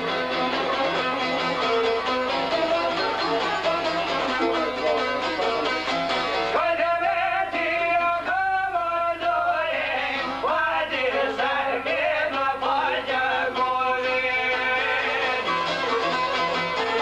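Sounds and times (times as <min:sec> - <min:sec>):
plucked lutes: 0:00.0 - 0:06.6.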